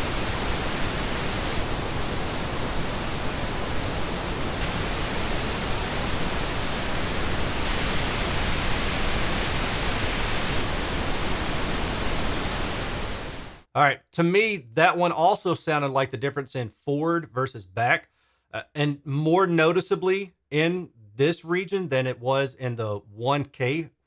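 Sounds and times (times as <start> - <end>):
pink noise: 0.0 - 13.7.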